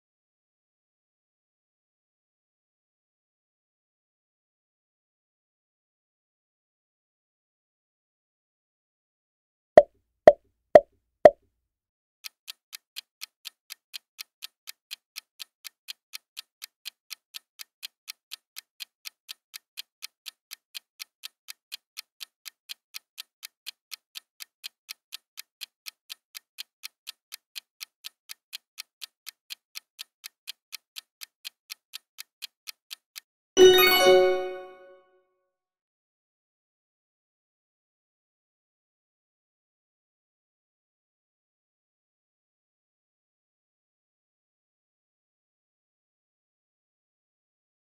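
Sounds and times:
clock ticking: 12.2s - 34.7s.

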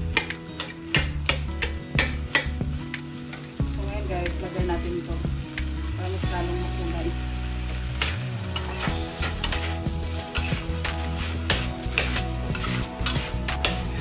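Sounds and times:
food sizzling in a wok: 0.0s - 14.0s
metal spatula scraping a pan: 8.0s - 14.0s.

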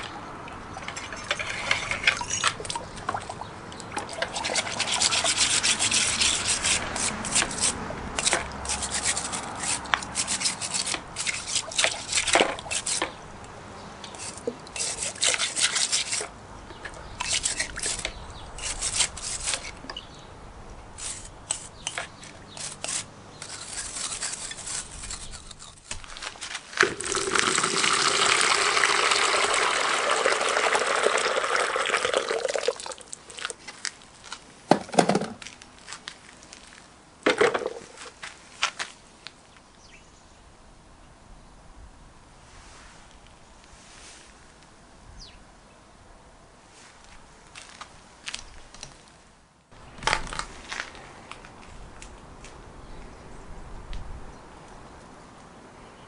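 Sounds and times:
scrub brush scratching metal: 4.2s - 13.2s, 14.1s - 16.3s, 17.2s - 19.9s, 21.0s - 26.0s
water pouring into bucket: 26.8s - 33.5s.

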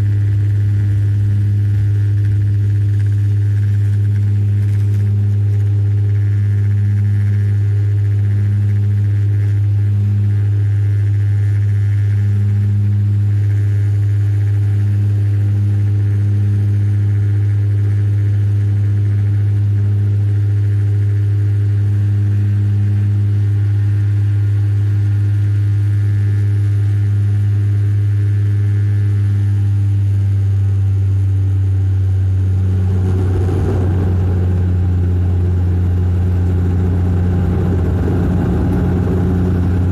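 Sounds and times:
turboprop cabin drone: 0.0s - 39.9s
rush of noise: 32.4s - 39.9s.

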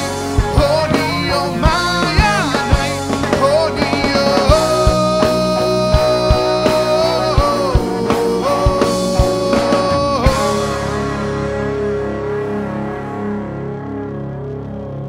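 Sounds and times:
man singing: 0.0s - 11.8s
drum kit beat: 0.0s - 12.7s
bass guitar: 0.0s - 15.0s
electric guitar: 0.0s - 15.0s.

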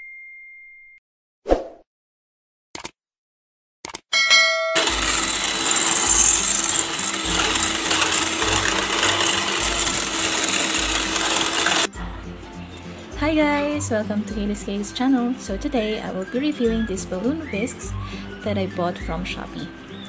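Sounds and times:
brief chime: 0.0s - 1.0s
electric hand mixer whipping cream: 4.8s - 11.9s.

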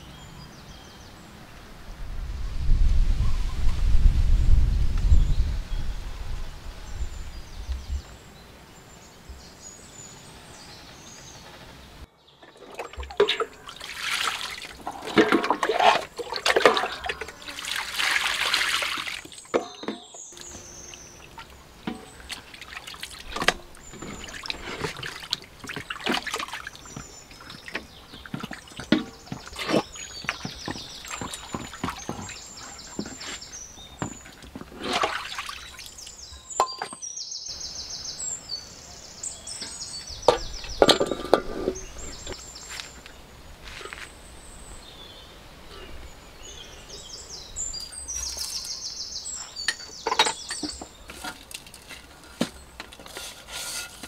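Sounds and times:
water splashing and trickling: 12.4s - 36.8s, 39.3s - 43.1s, 46.4s - 54.0s
water pouring off metal bowl: 12.7s - 19.5s, 34.8s - 36.1s.

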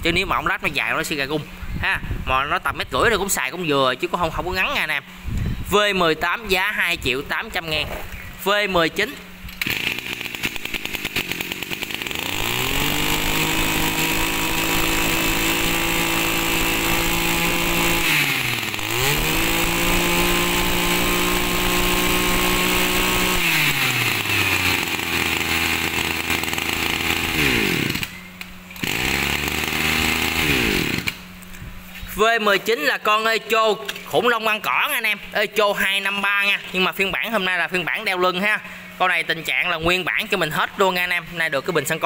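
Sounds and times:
brush cutter engine revving: 8.8s - 31.6s.

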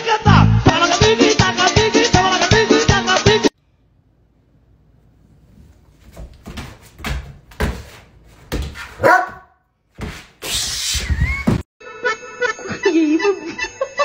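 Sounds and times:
dog barking: 8.8s - 9.6s.

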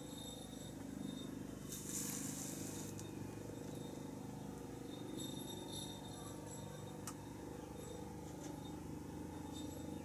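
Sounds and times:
soft rustle of movement: 1.6s - 3.1s.

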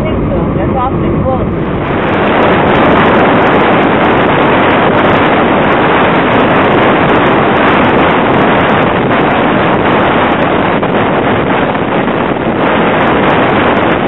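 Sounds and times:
car road and wind noise: 0.0s - 14.0s.

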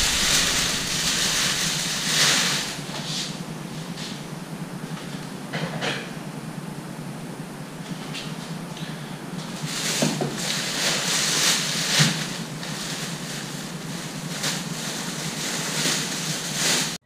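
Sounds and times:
plastic bag rustling: 0.0s - 3.3s, 9.6s - 17.0s
low hum: 0.0s - 9.9s.

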